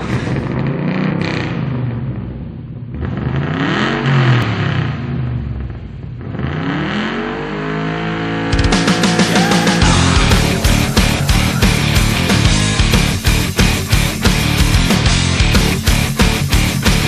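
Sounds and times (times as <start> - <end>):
engine-like revving sound effect: 6.3 - 14.8
loud rock music with heavy drums: 8.5 - 17.0.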